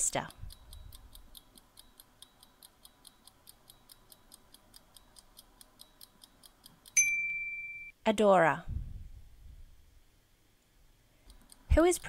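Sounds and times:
clock ticking: 0:00.0 - 0:07.0, 0:11.2 - 0:12.0
bright ding: 0:07.0 - 0:08.0.

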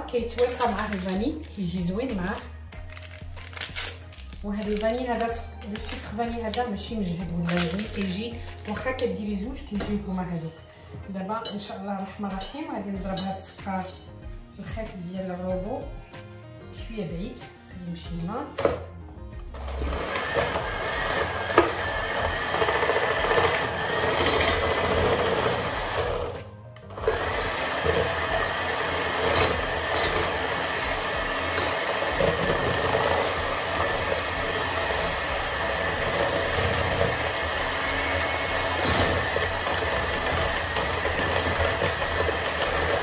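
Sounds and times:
electric hand mixer whirring: 0:19.5 - 0:43.0.

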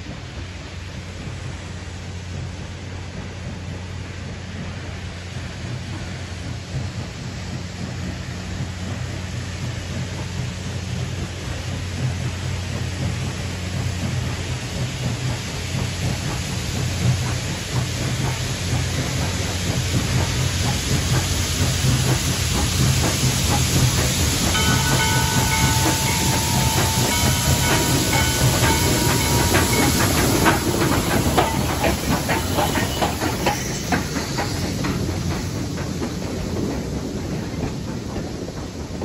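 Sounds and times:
steam hissing: 0:00.0 - 0:39.0
steam locomotive exhaust: 0:00.0 - 0:39.0
wheels clicking over rails: 0:14.1 - 0:39.0
steady high ringing tone: 0:24.6 - 0:31.9.

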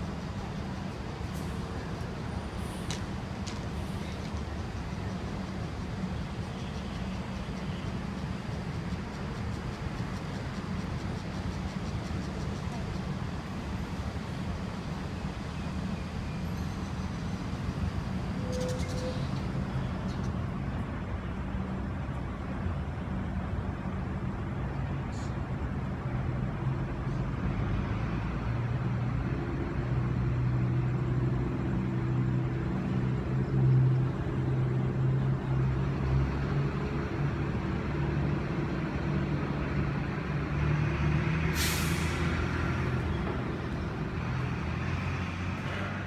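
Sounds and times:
sharp hiss of air: 0:41.4 - 0:42.9.

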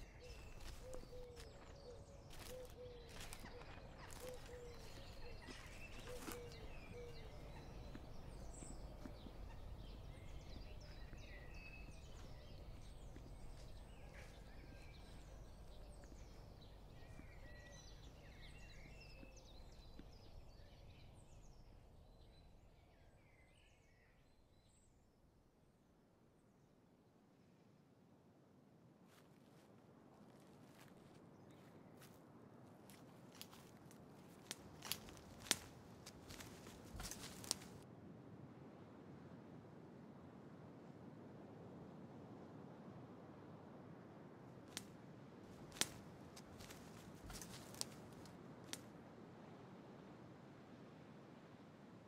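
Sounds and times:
birds chirping and whistling: 0:00.0 - 0:12.6
low outdoor rumble: 0:00.0 - 0:22.7.

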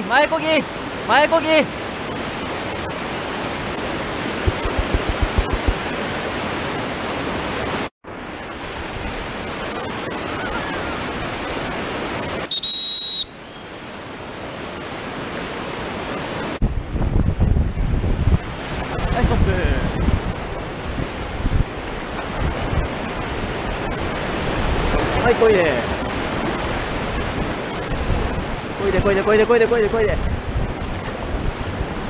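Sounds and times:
whitewater rapids rushing: 0:00.0 - 0:07.9, 0:08.7 - 0:16.6, 0:18.4 - 0:32.0
wind buffeting microphone: 0:03.6 - 0:05.9, 0:16.6 - 0:32.0.

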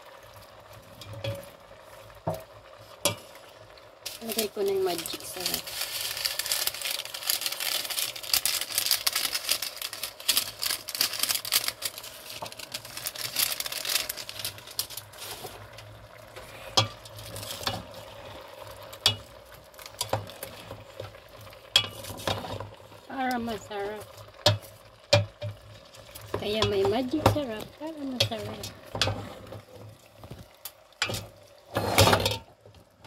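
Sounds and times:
food sizzling in a pot: 0:00.0 - 0:33.0.

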